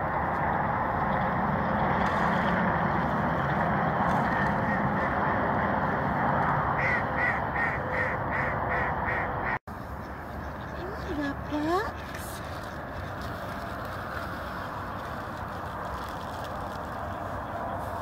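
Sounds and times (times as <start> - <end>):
steady rushing noise: 0.0 - 18.0.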